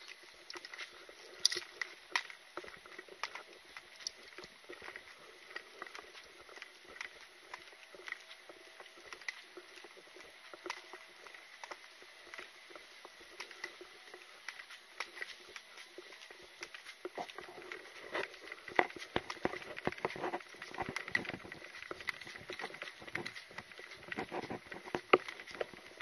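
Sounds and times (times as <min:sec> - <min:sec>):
carried gear rattling: 0:00.0 - 0:26.0
footsteps: 0:00.0 - 0:26.0
faint steady high tone: 0:06.1 - 0:22.2.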